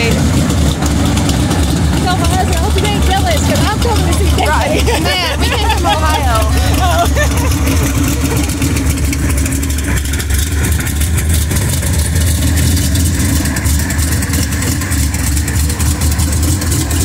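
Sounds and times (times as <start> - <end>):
car engine idling loudly: 0.0 - 17.0.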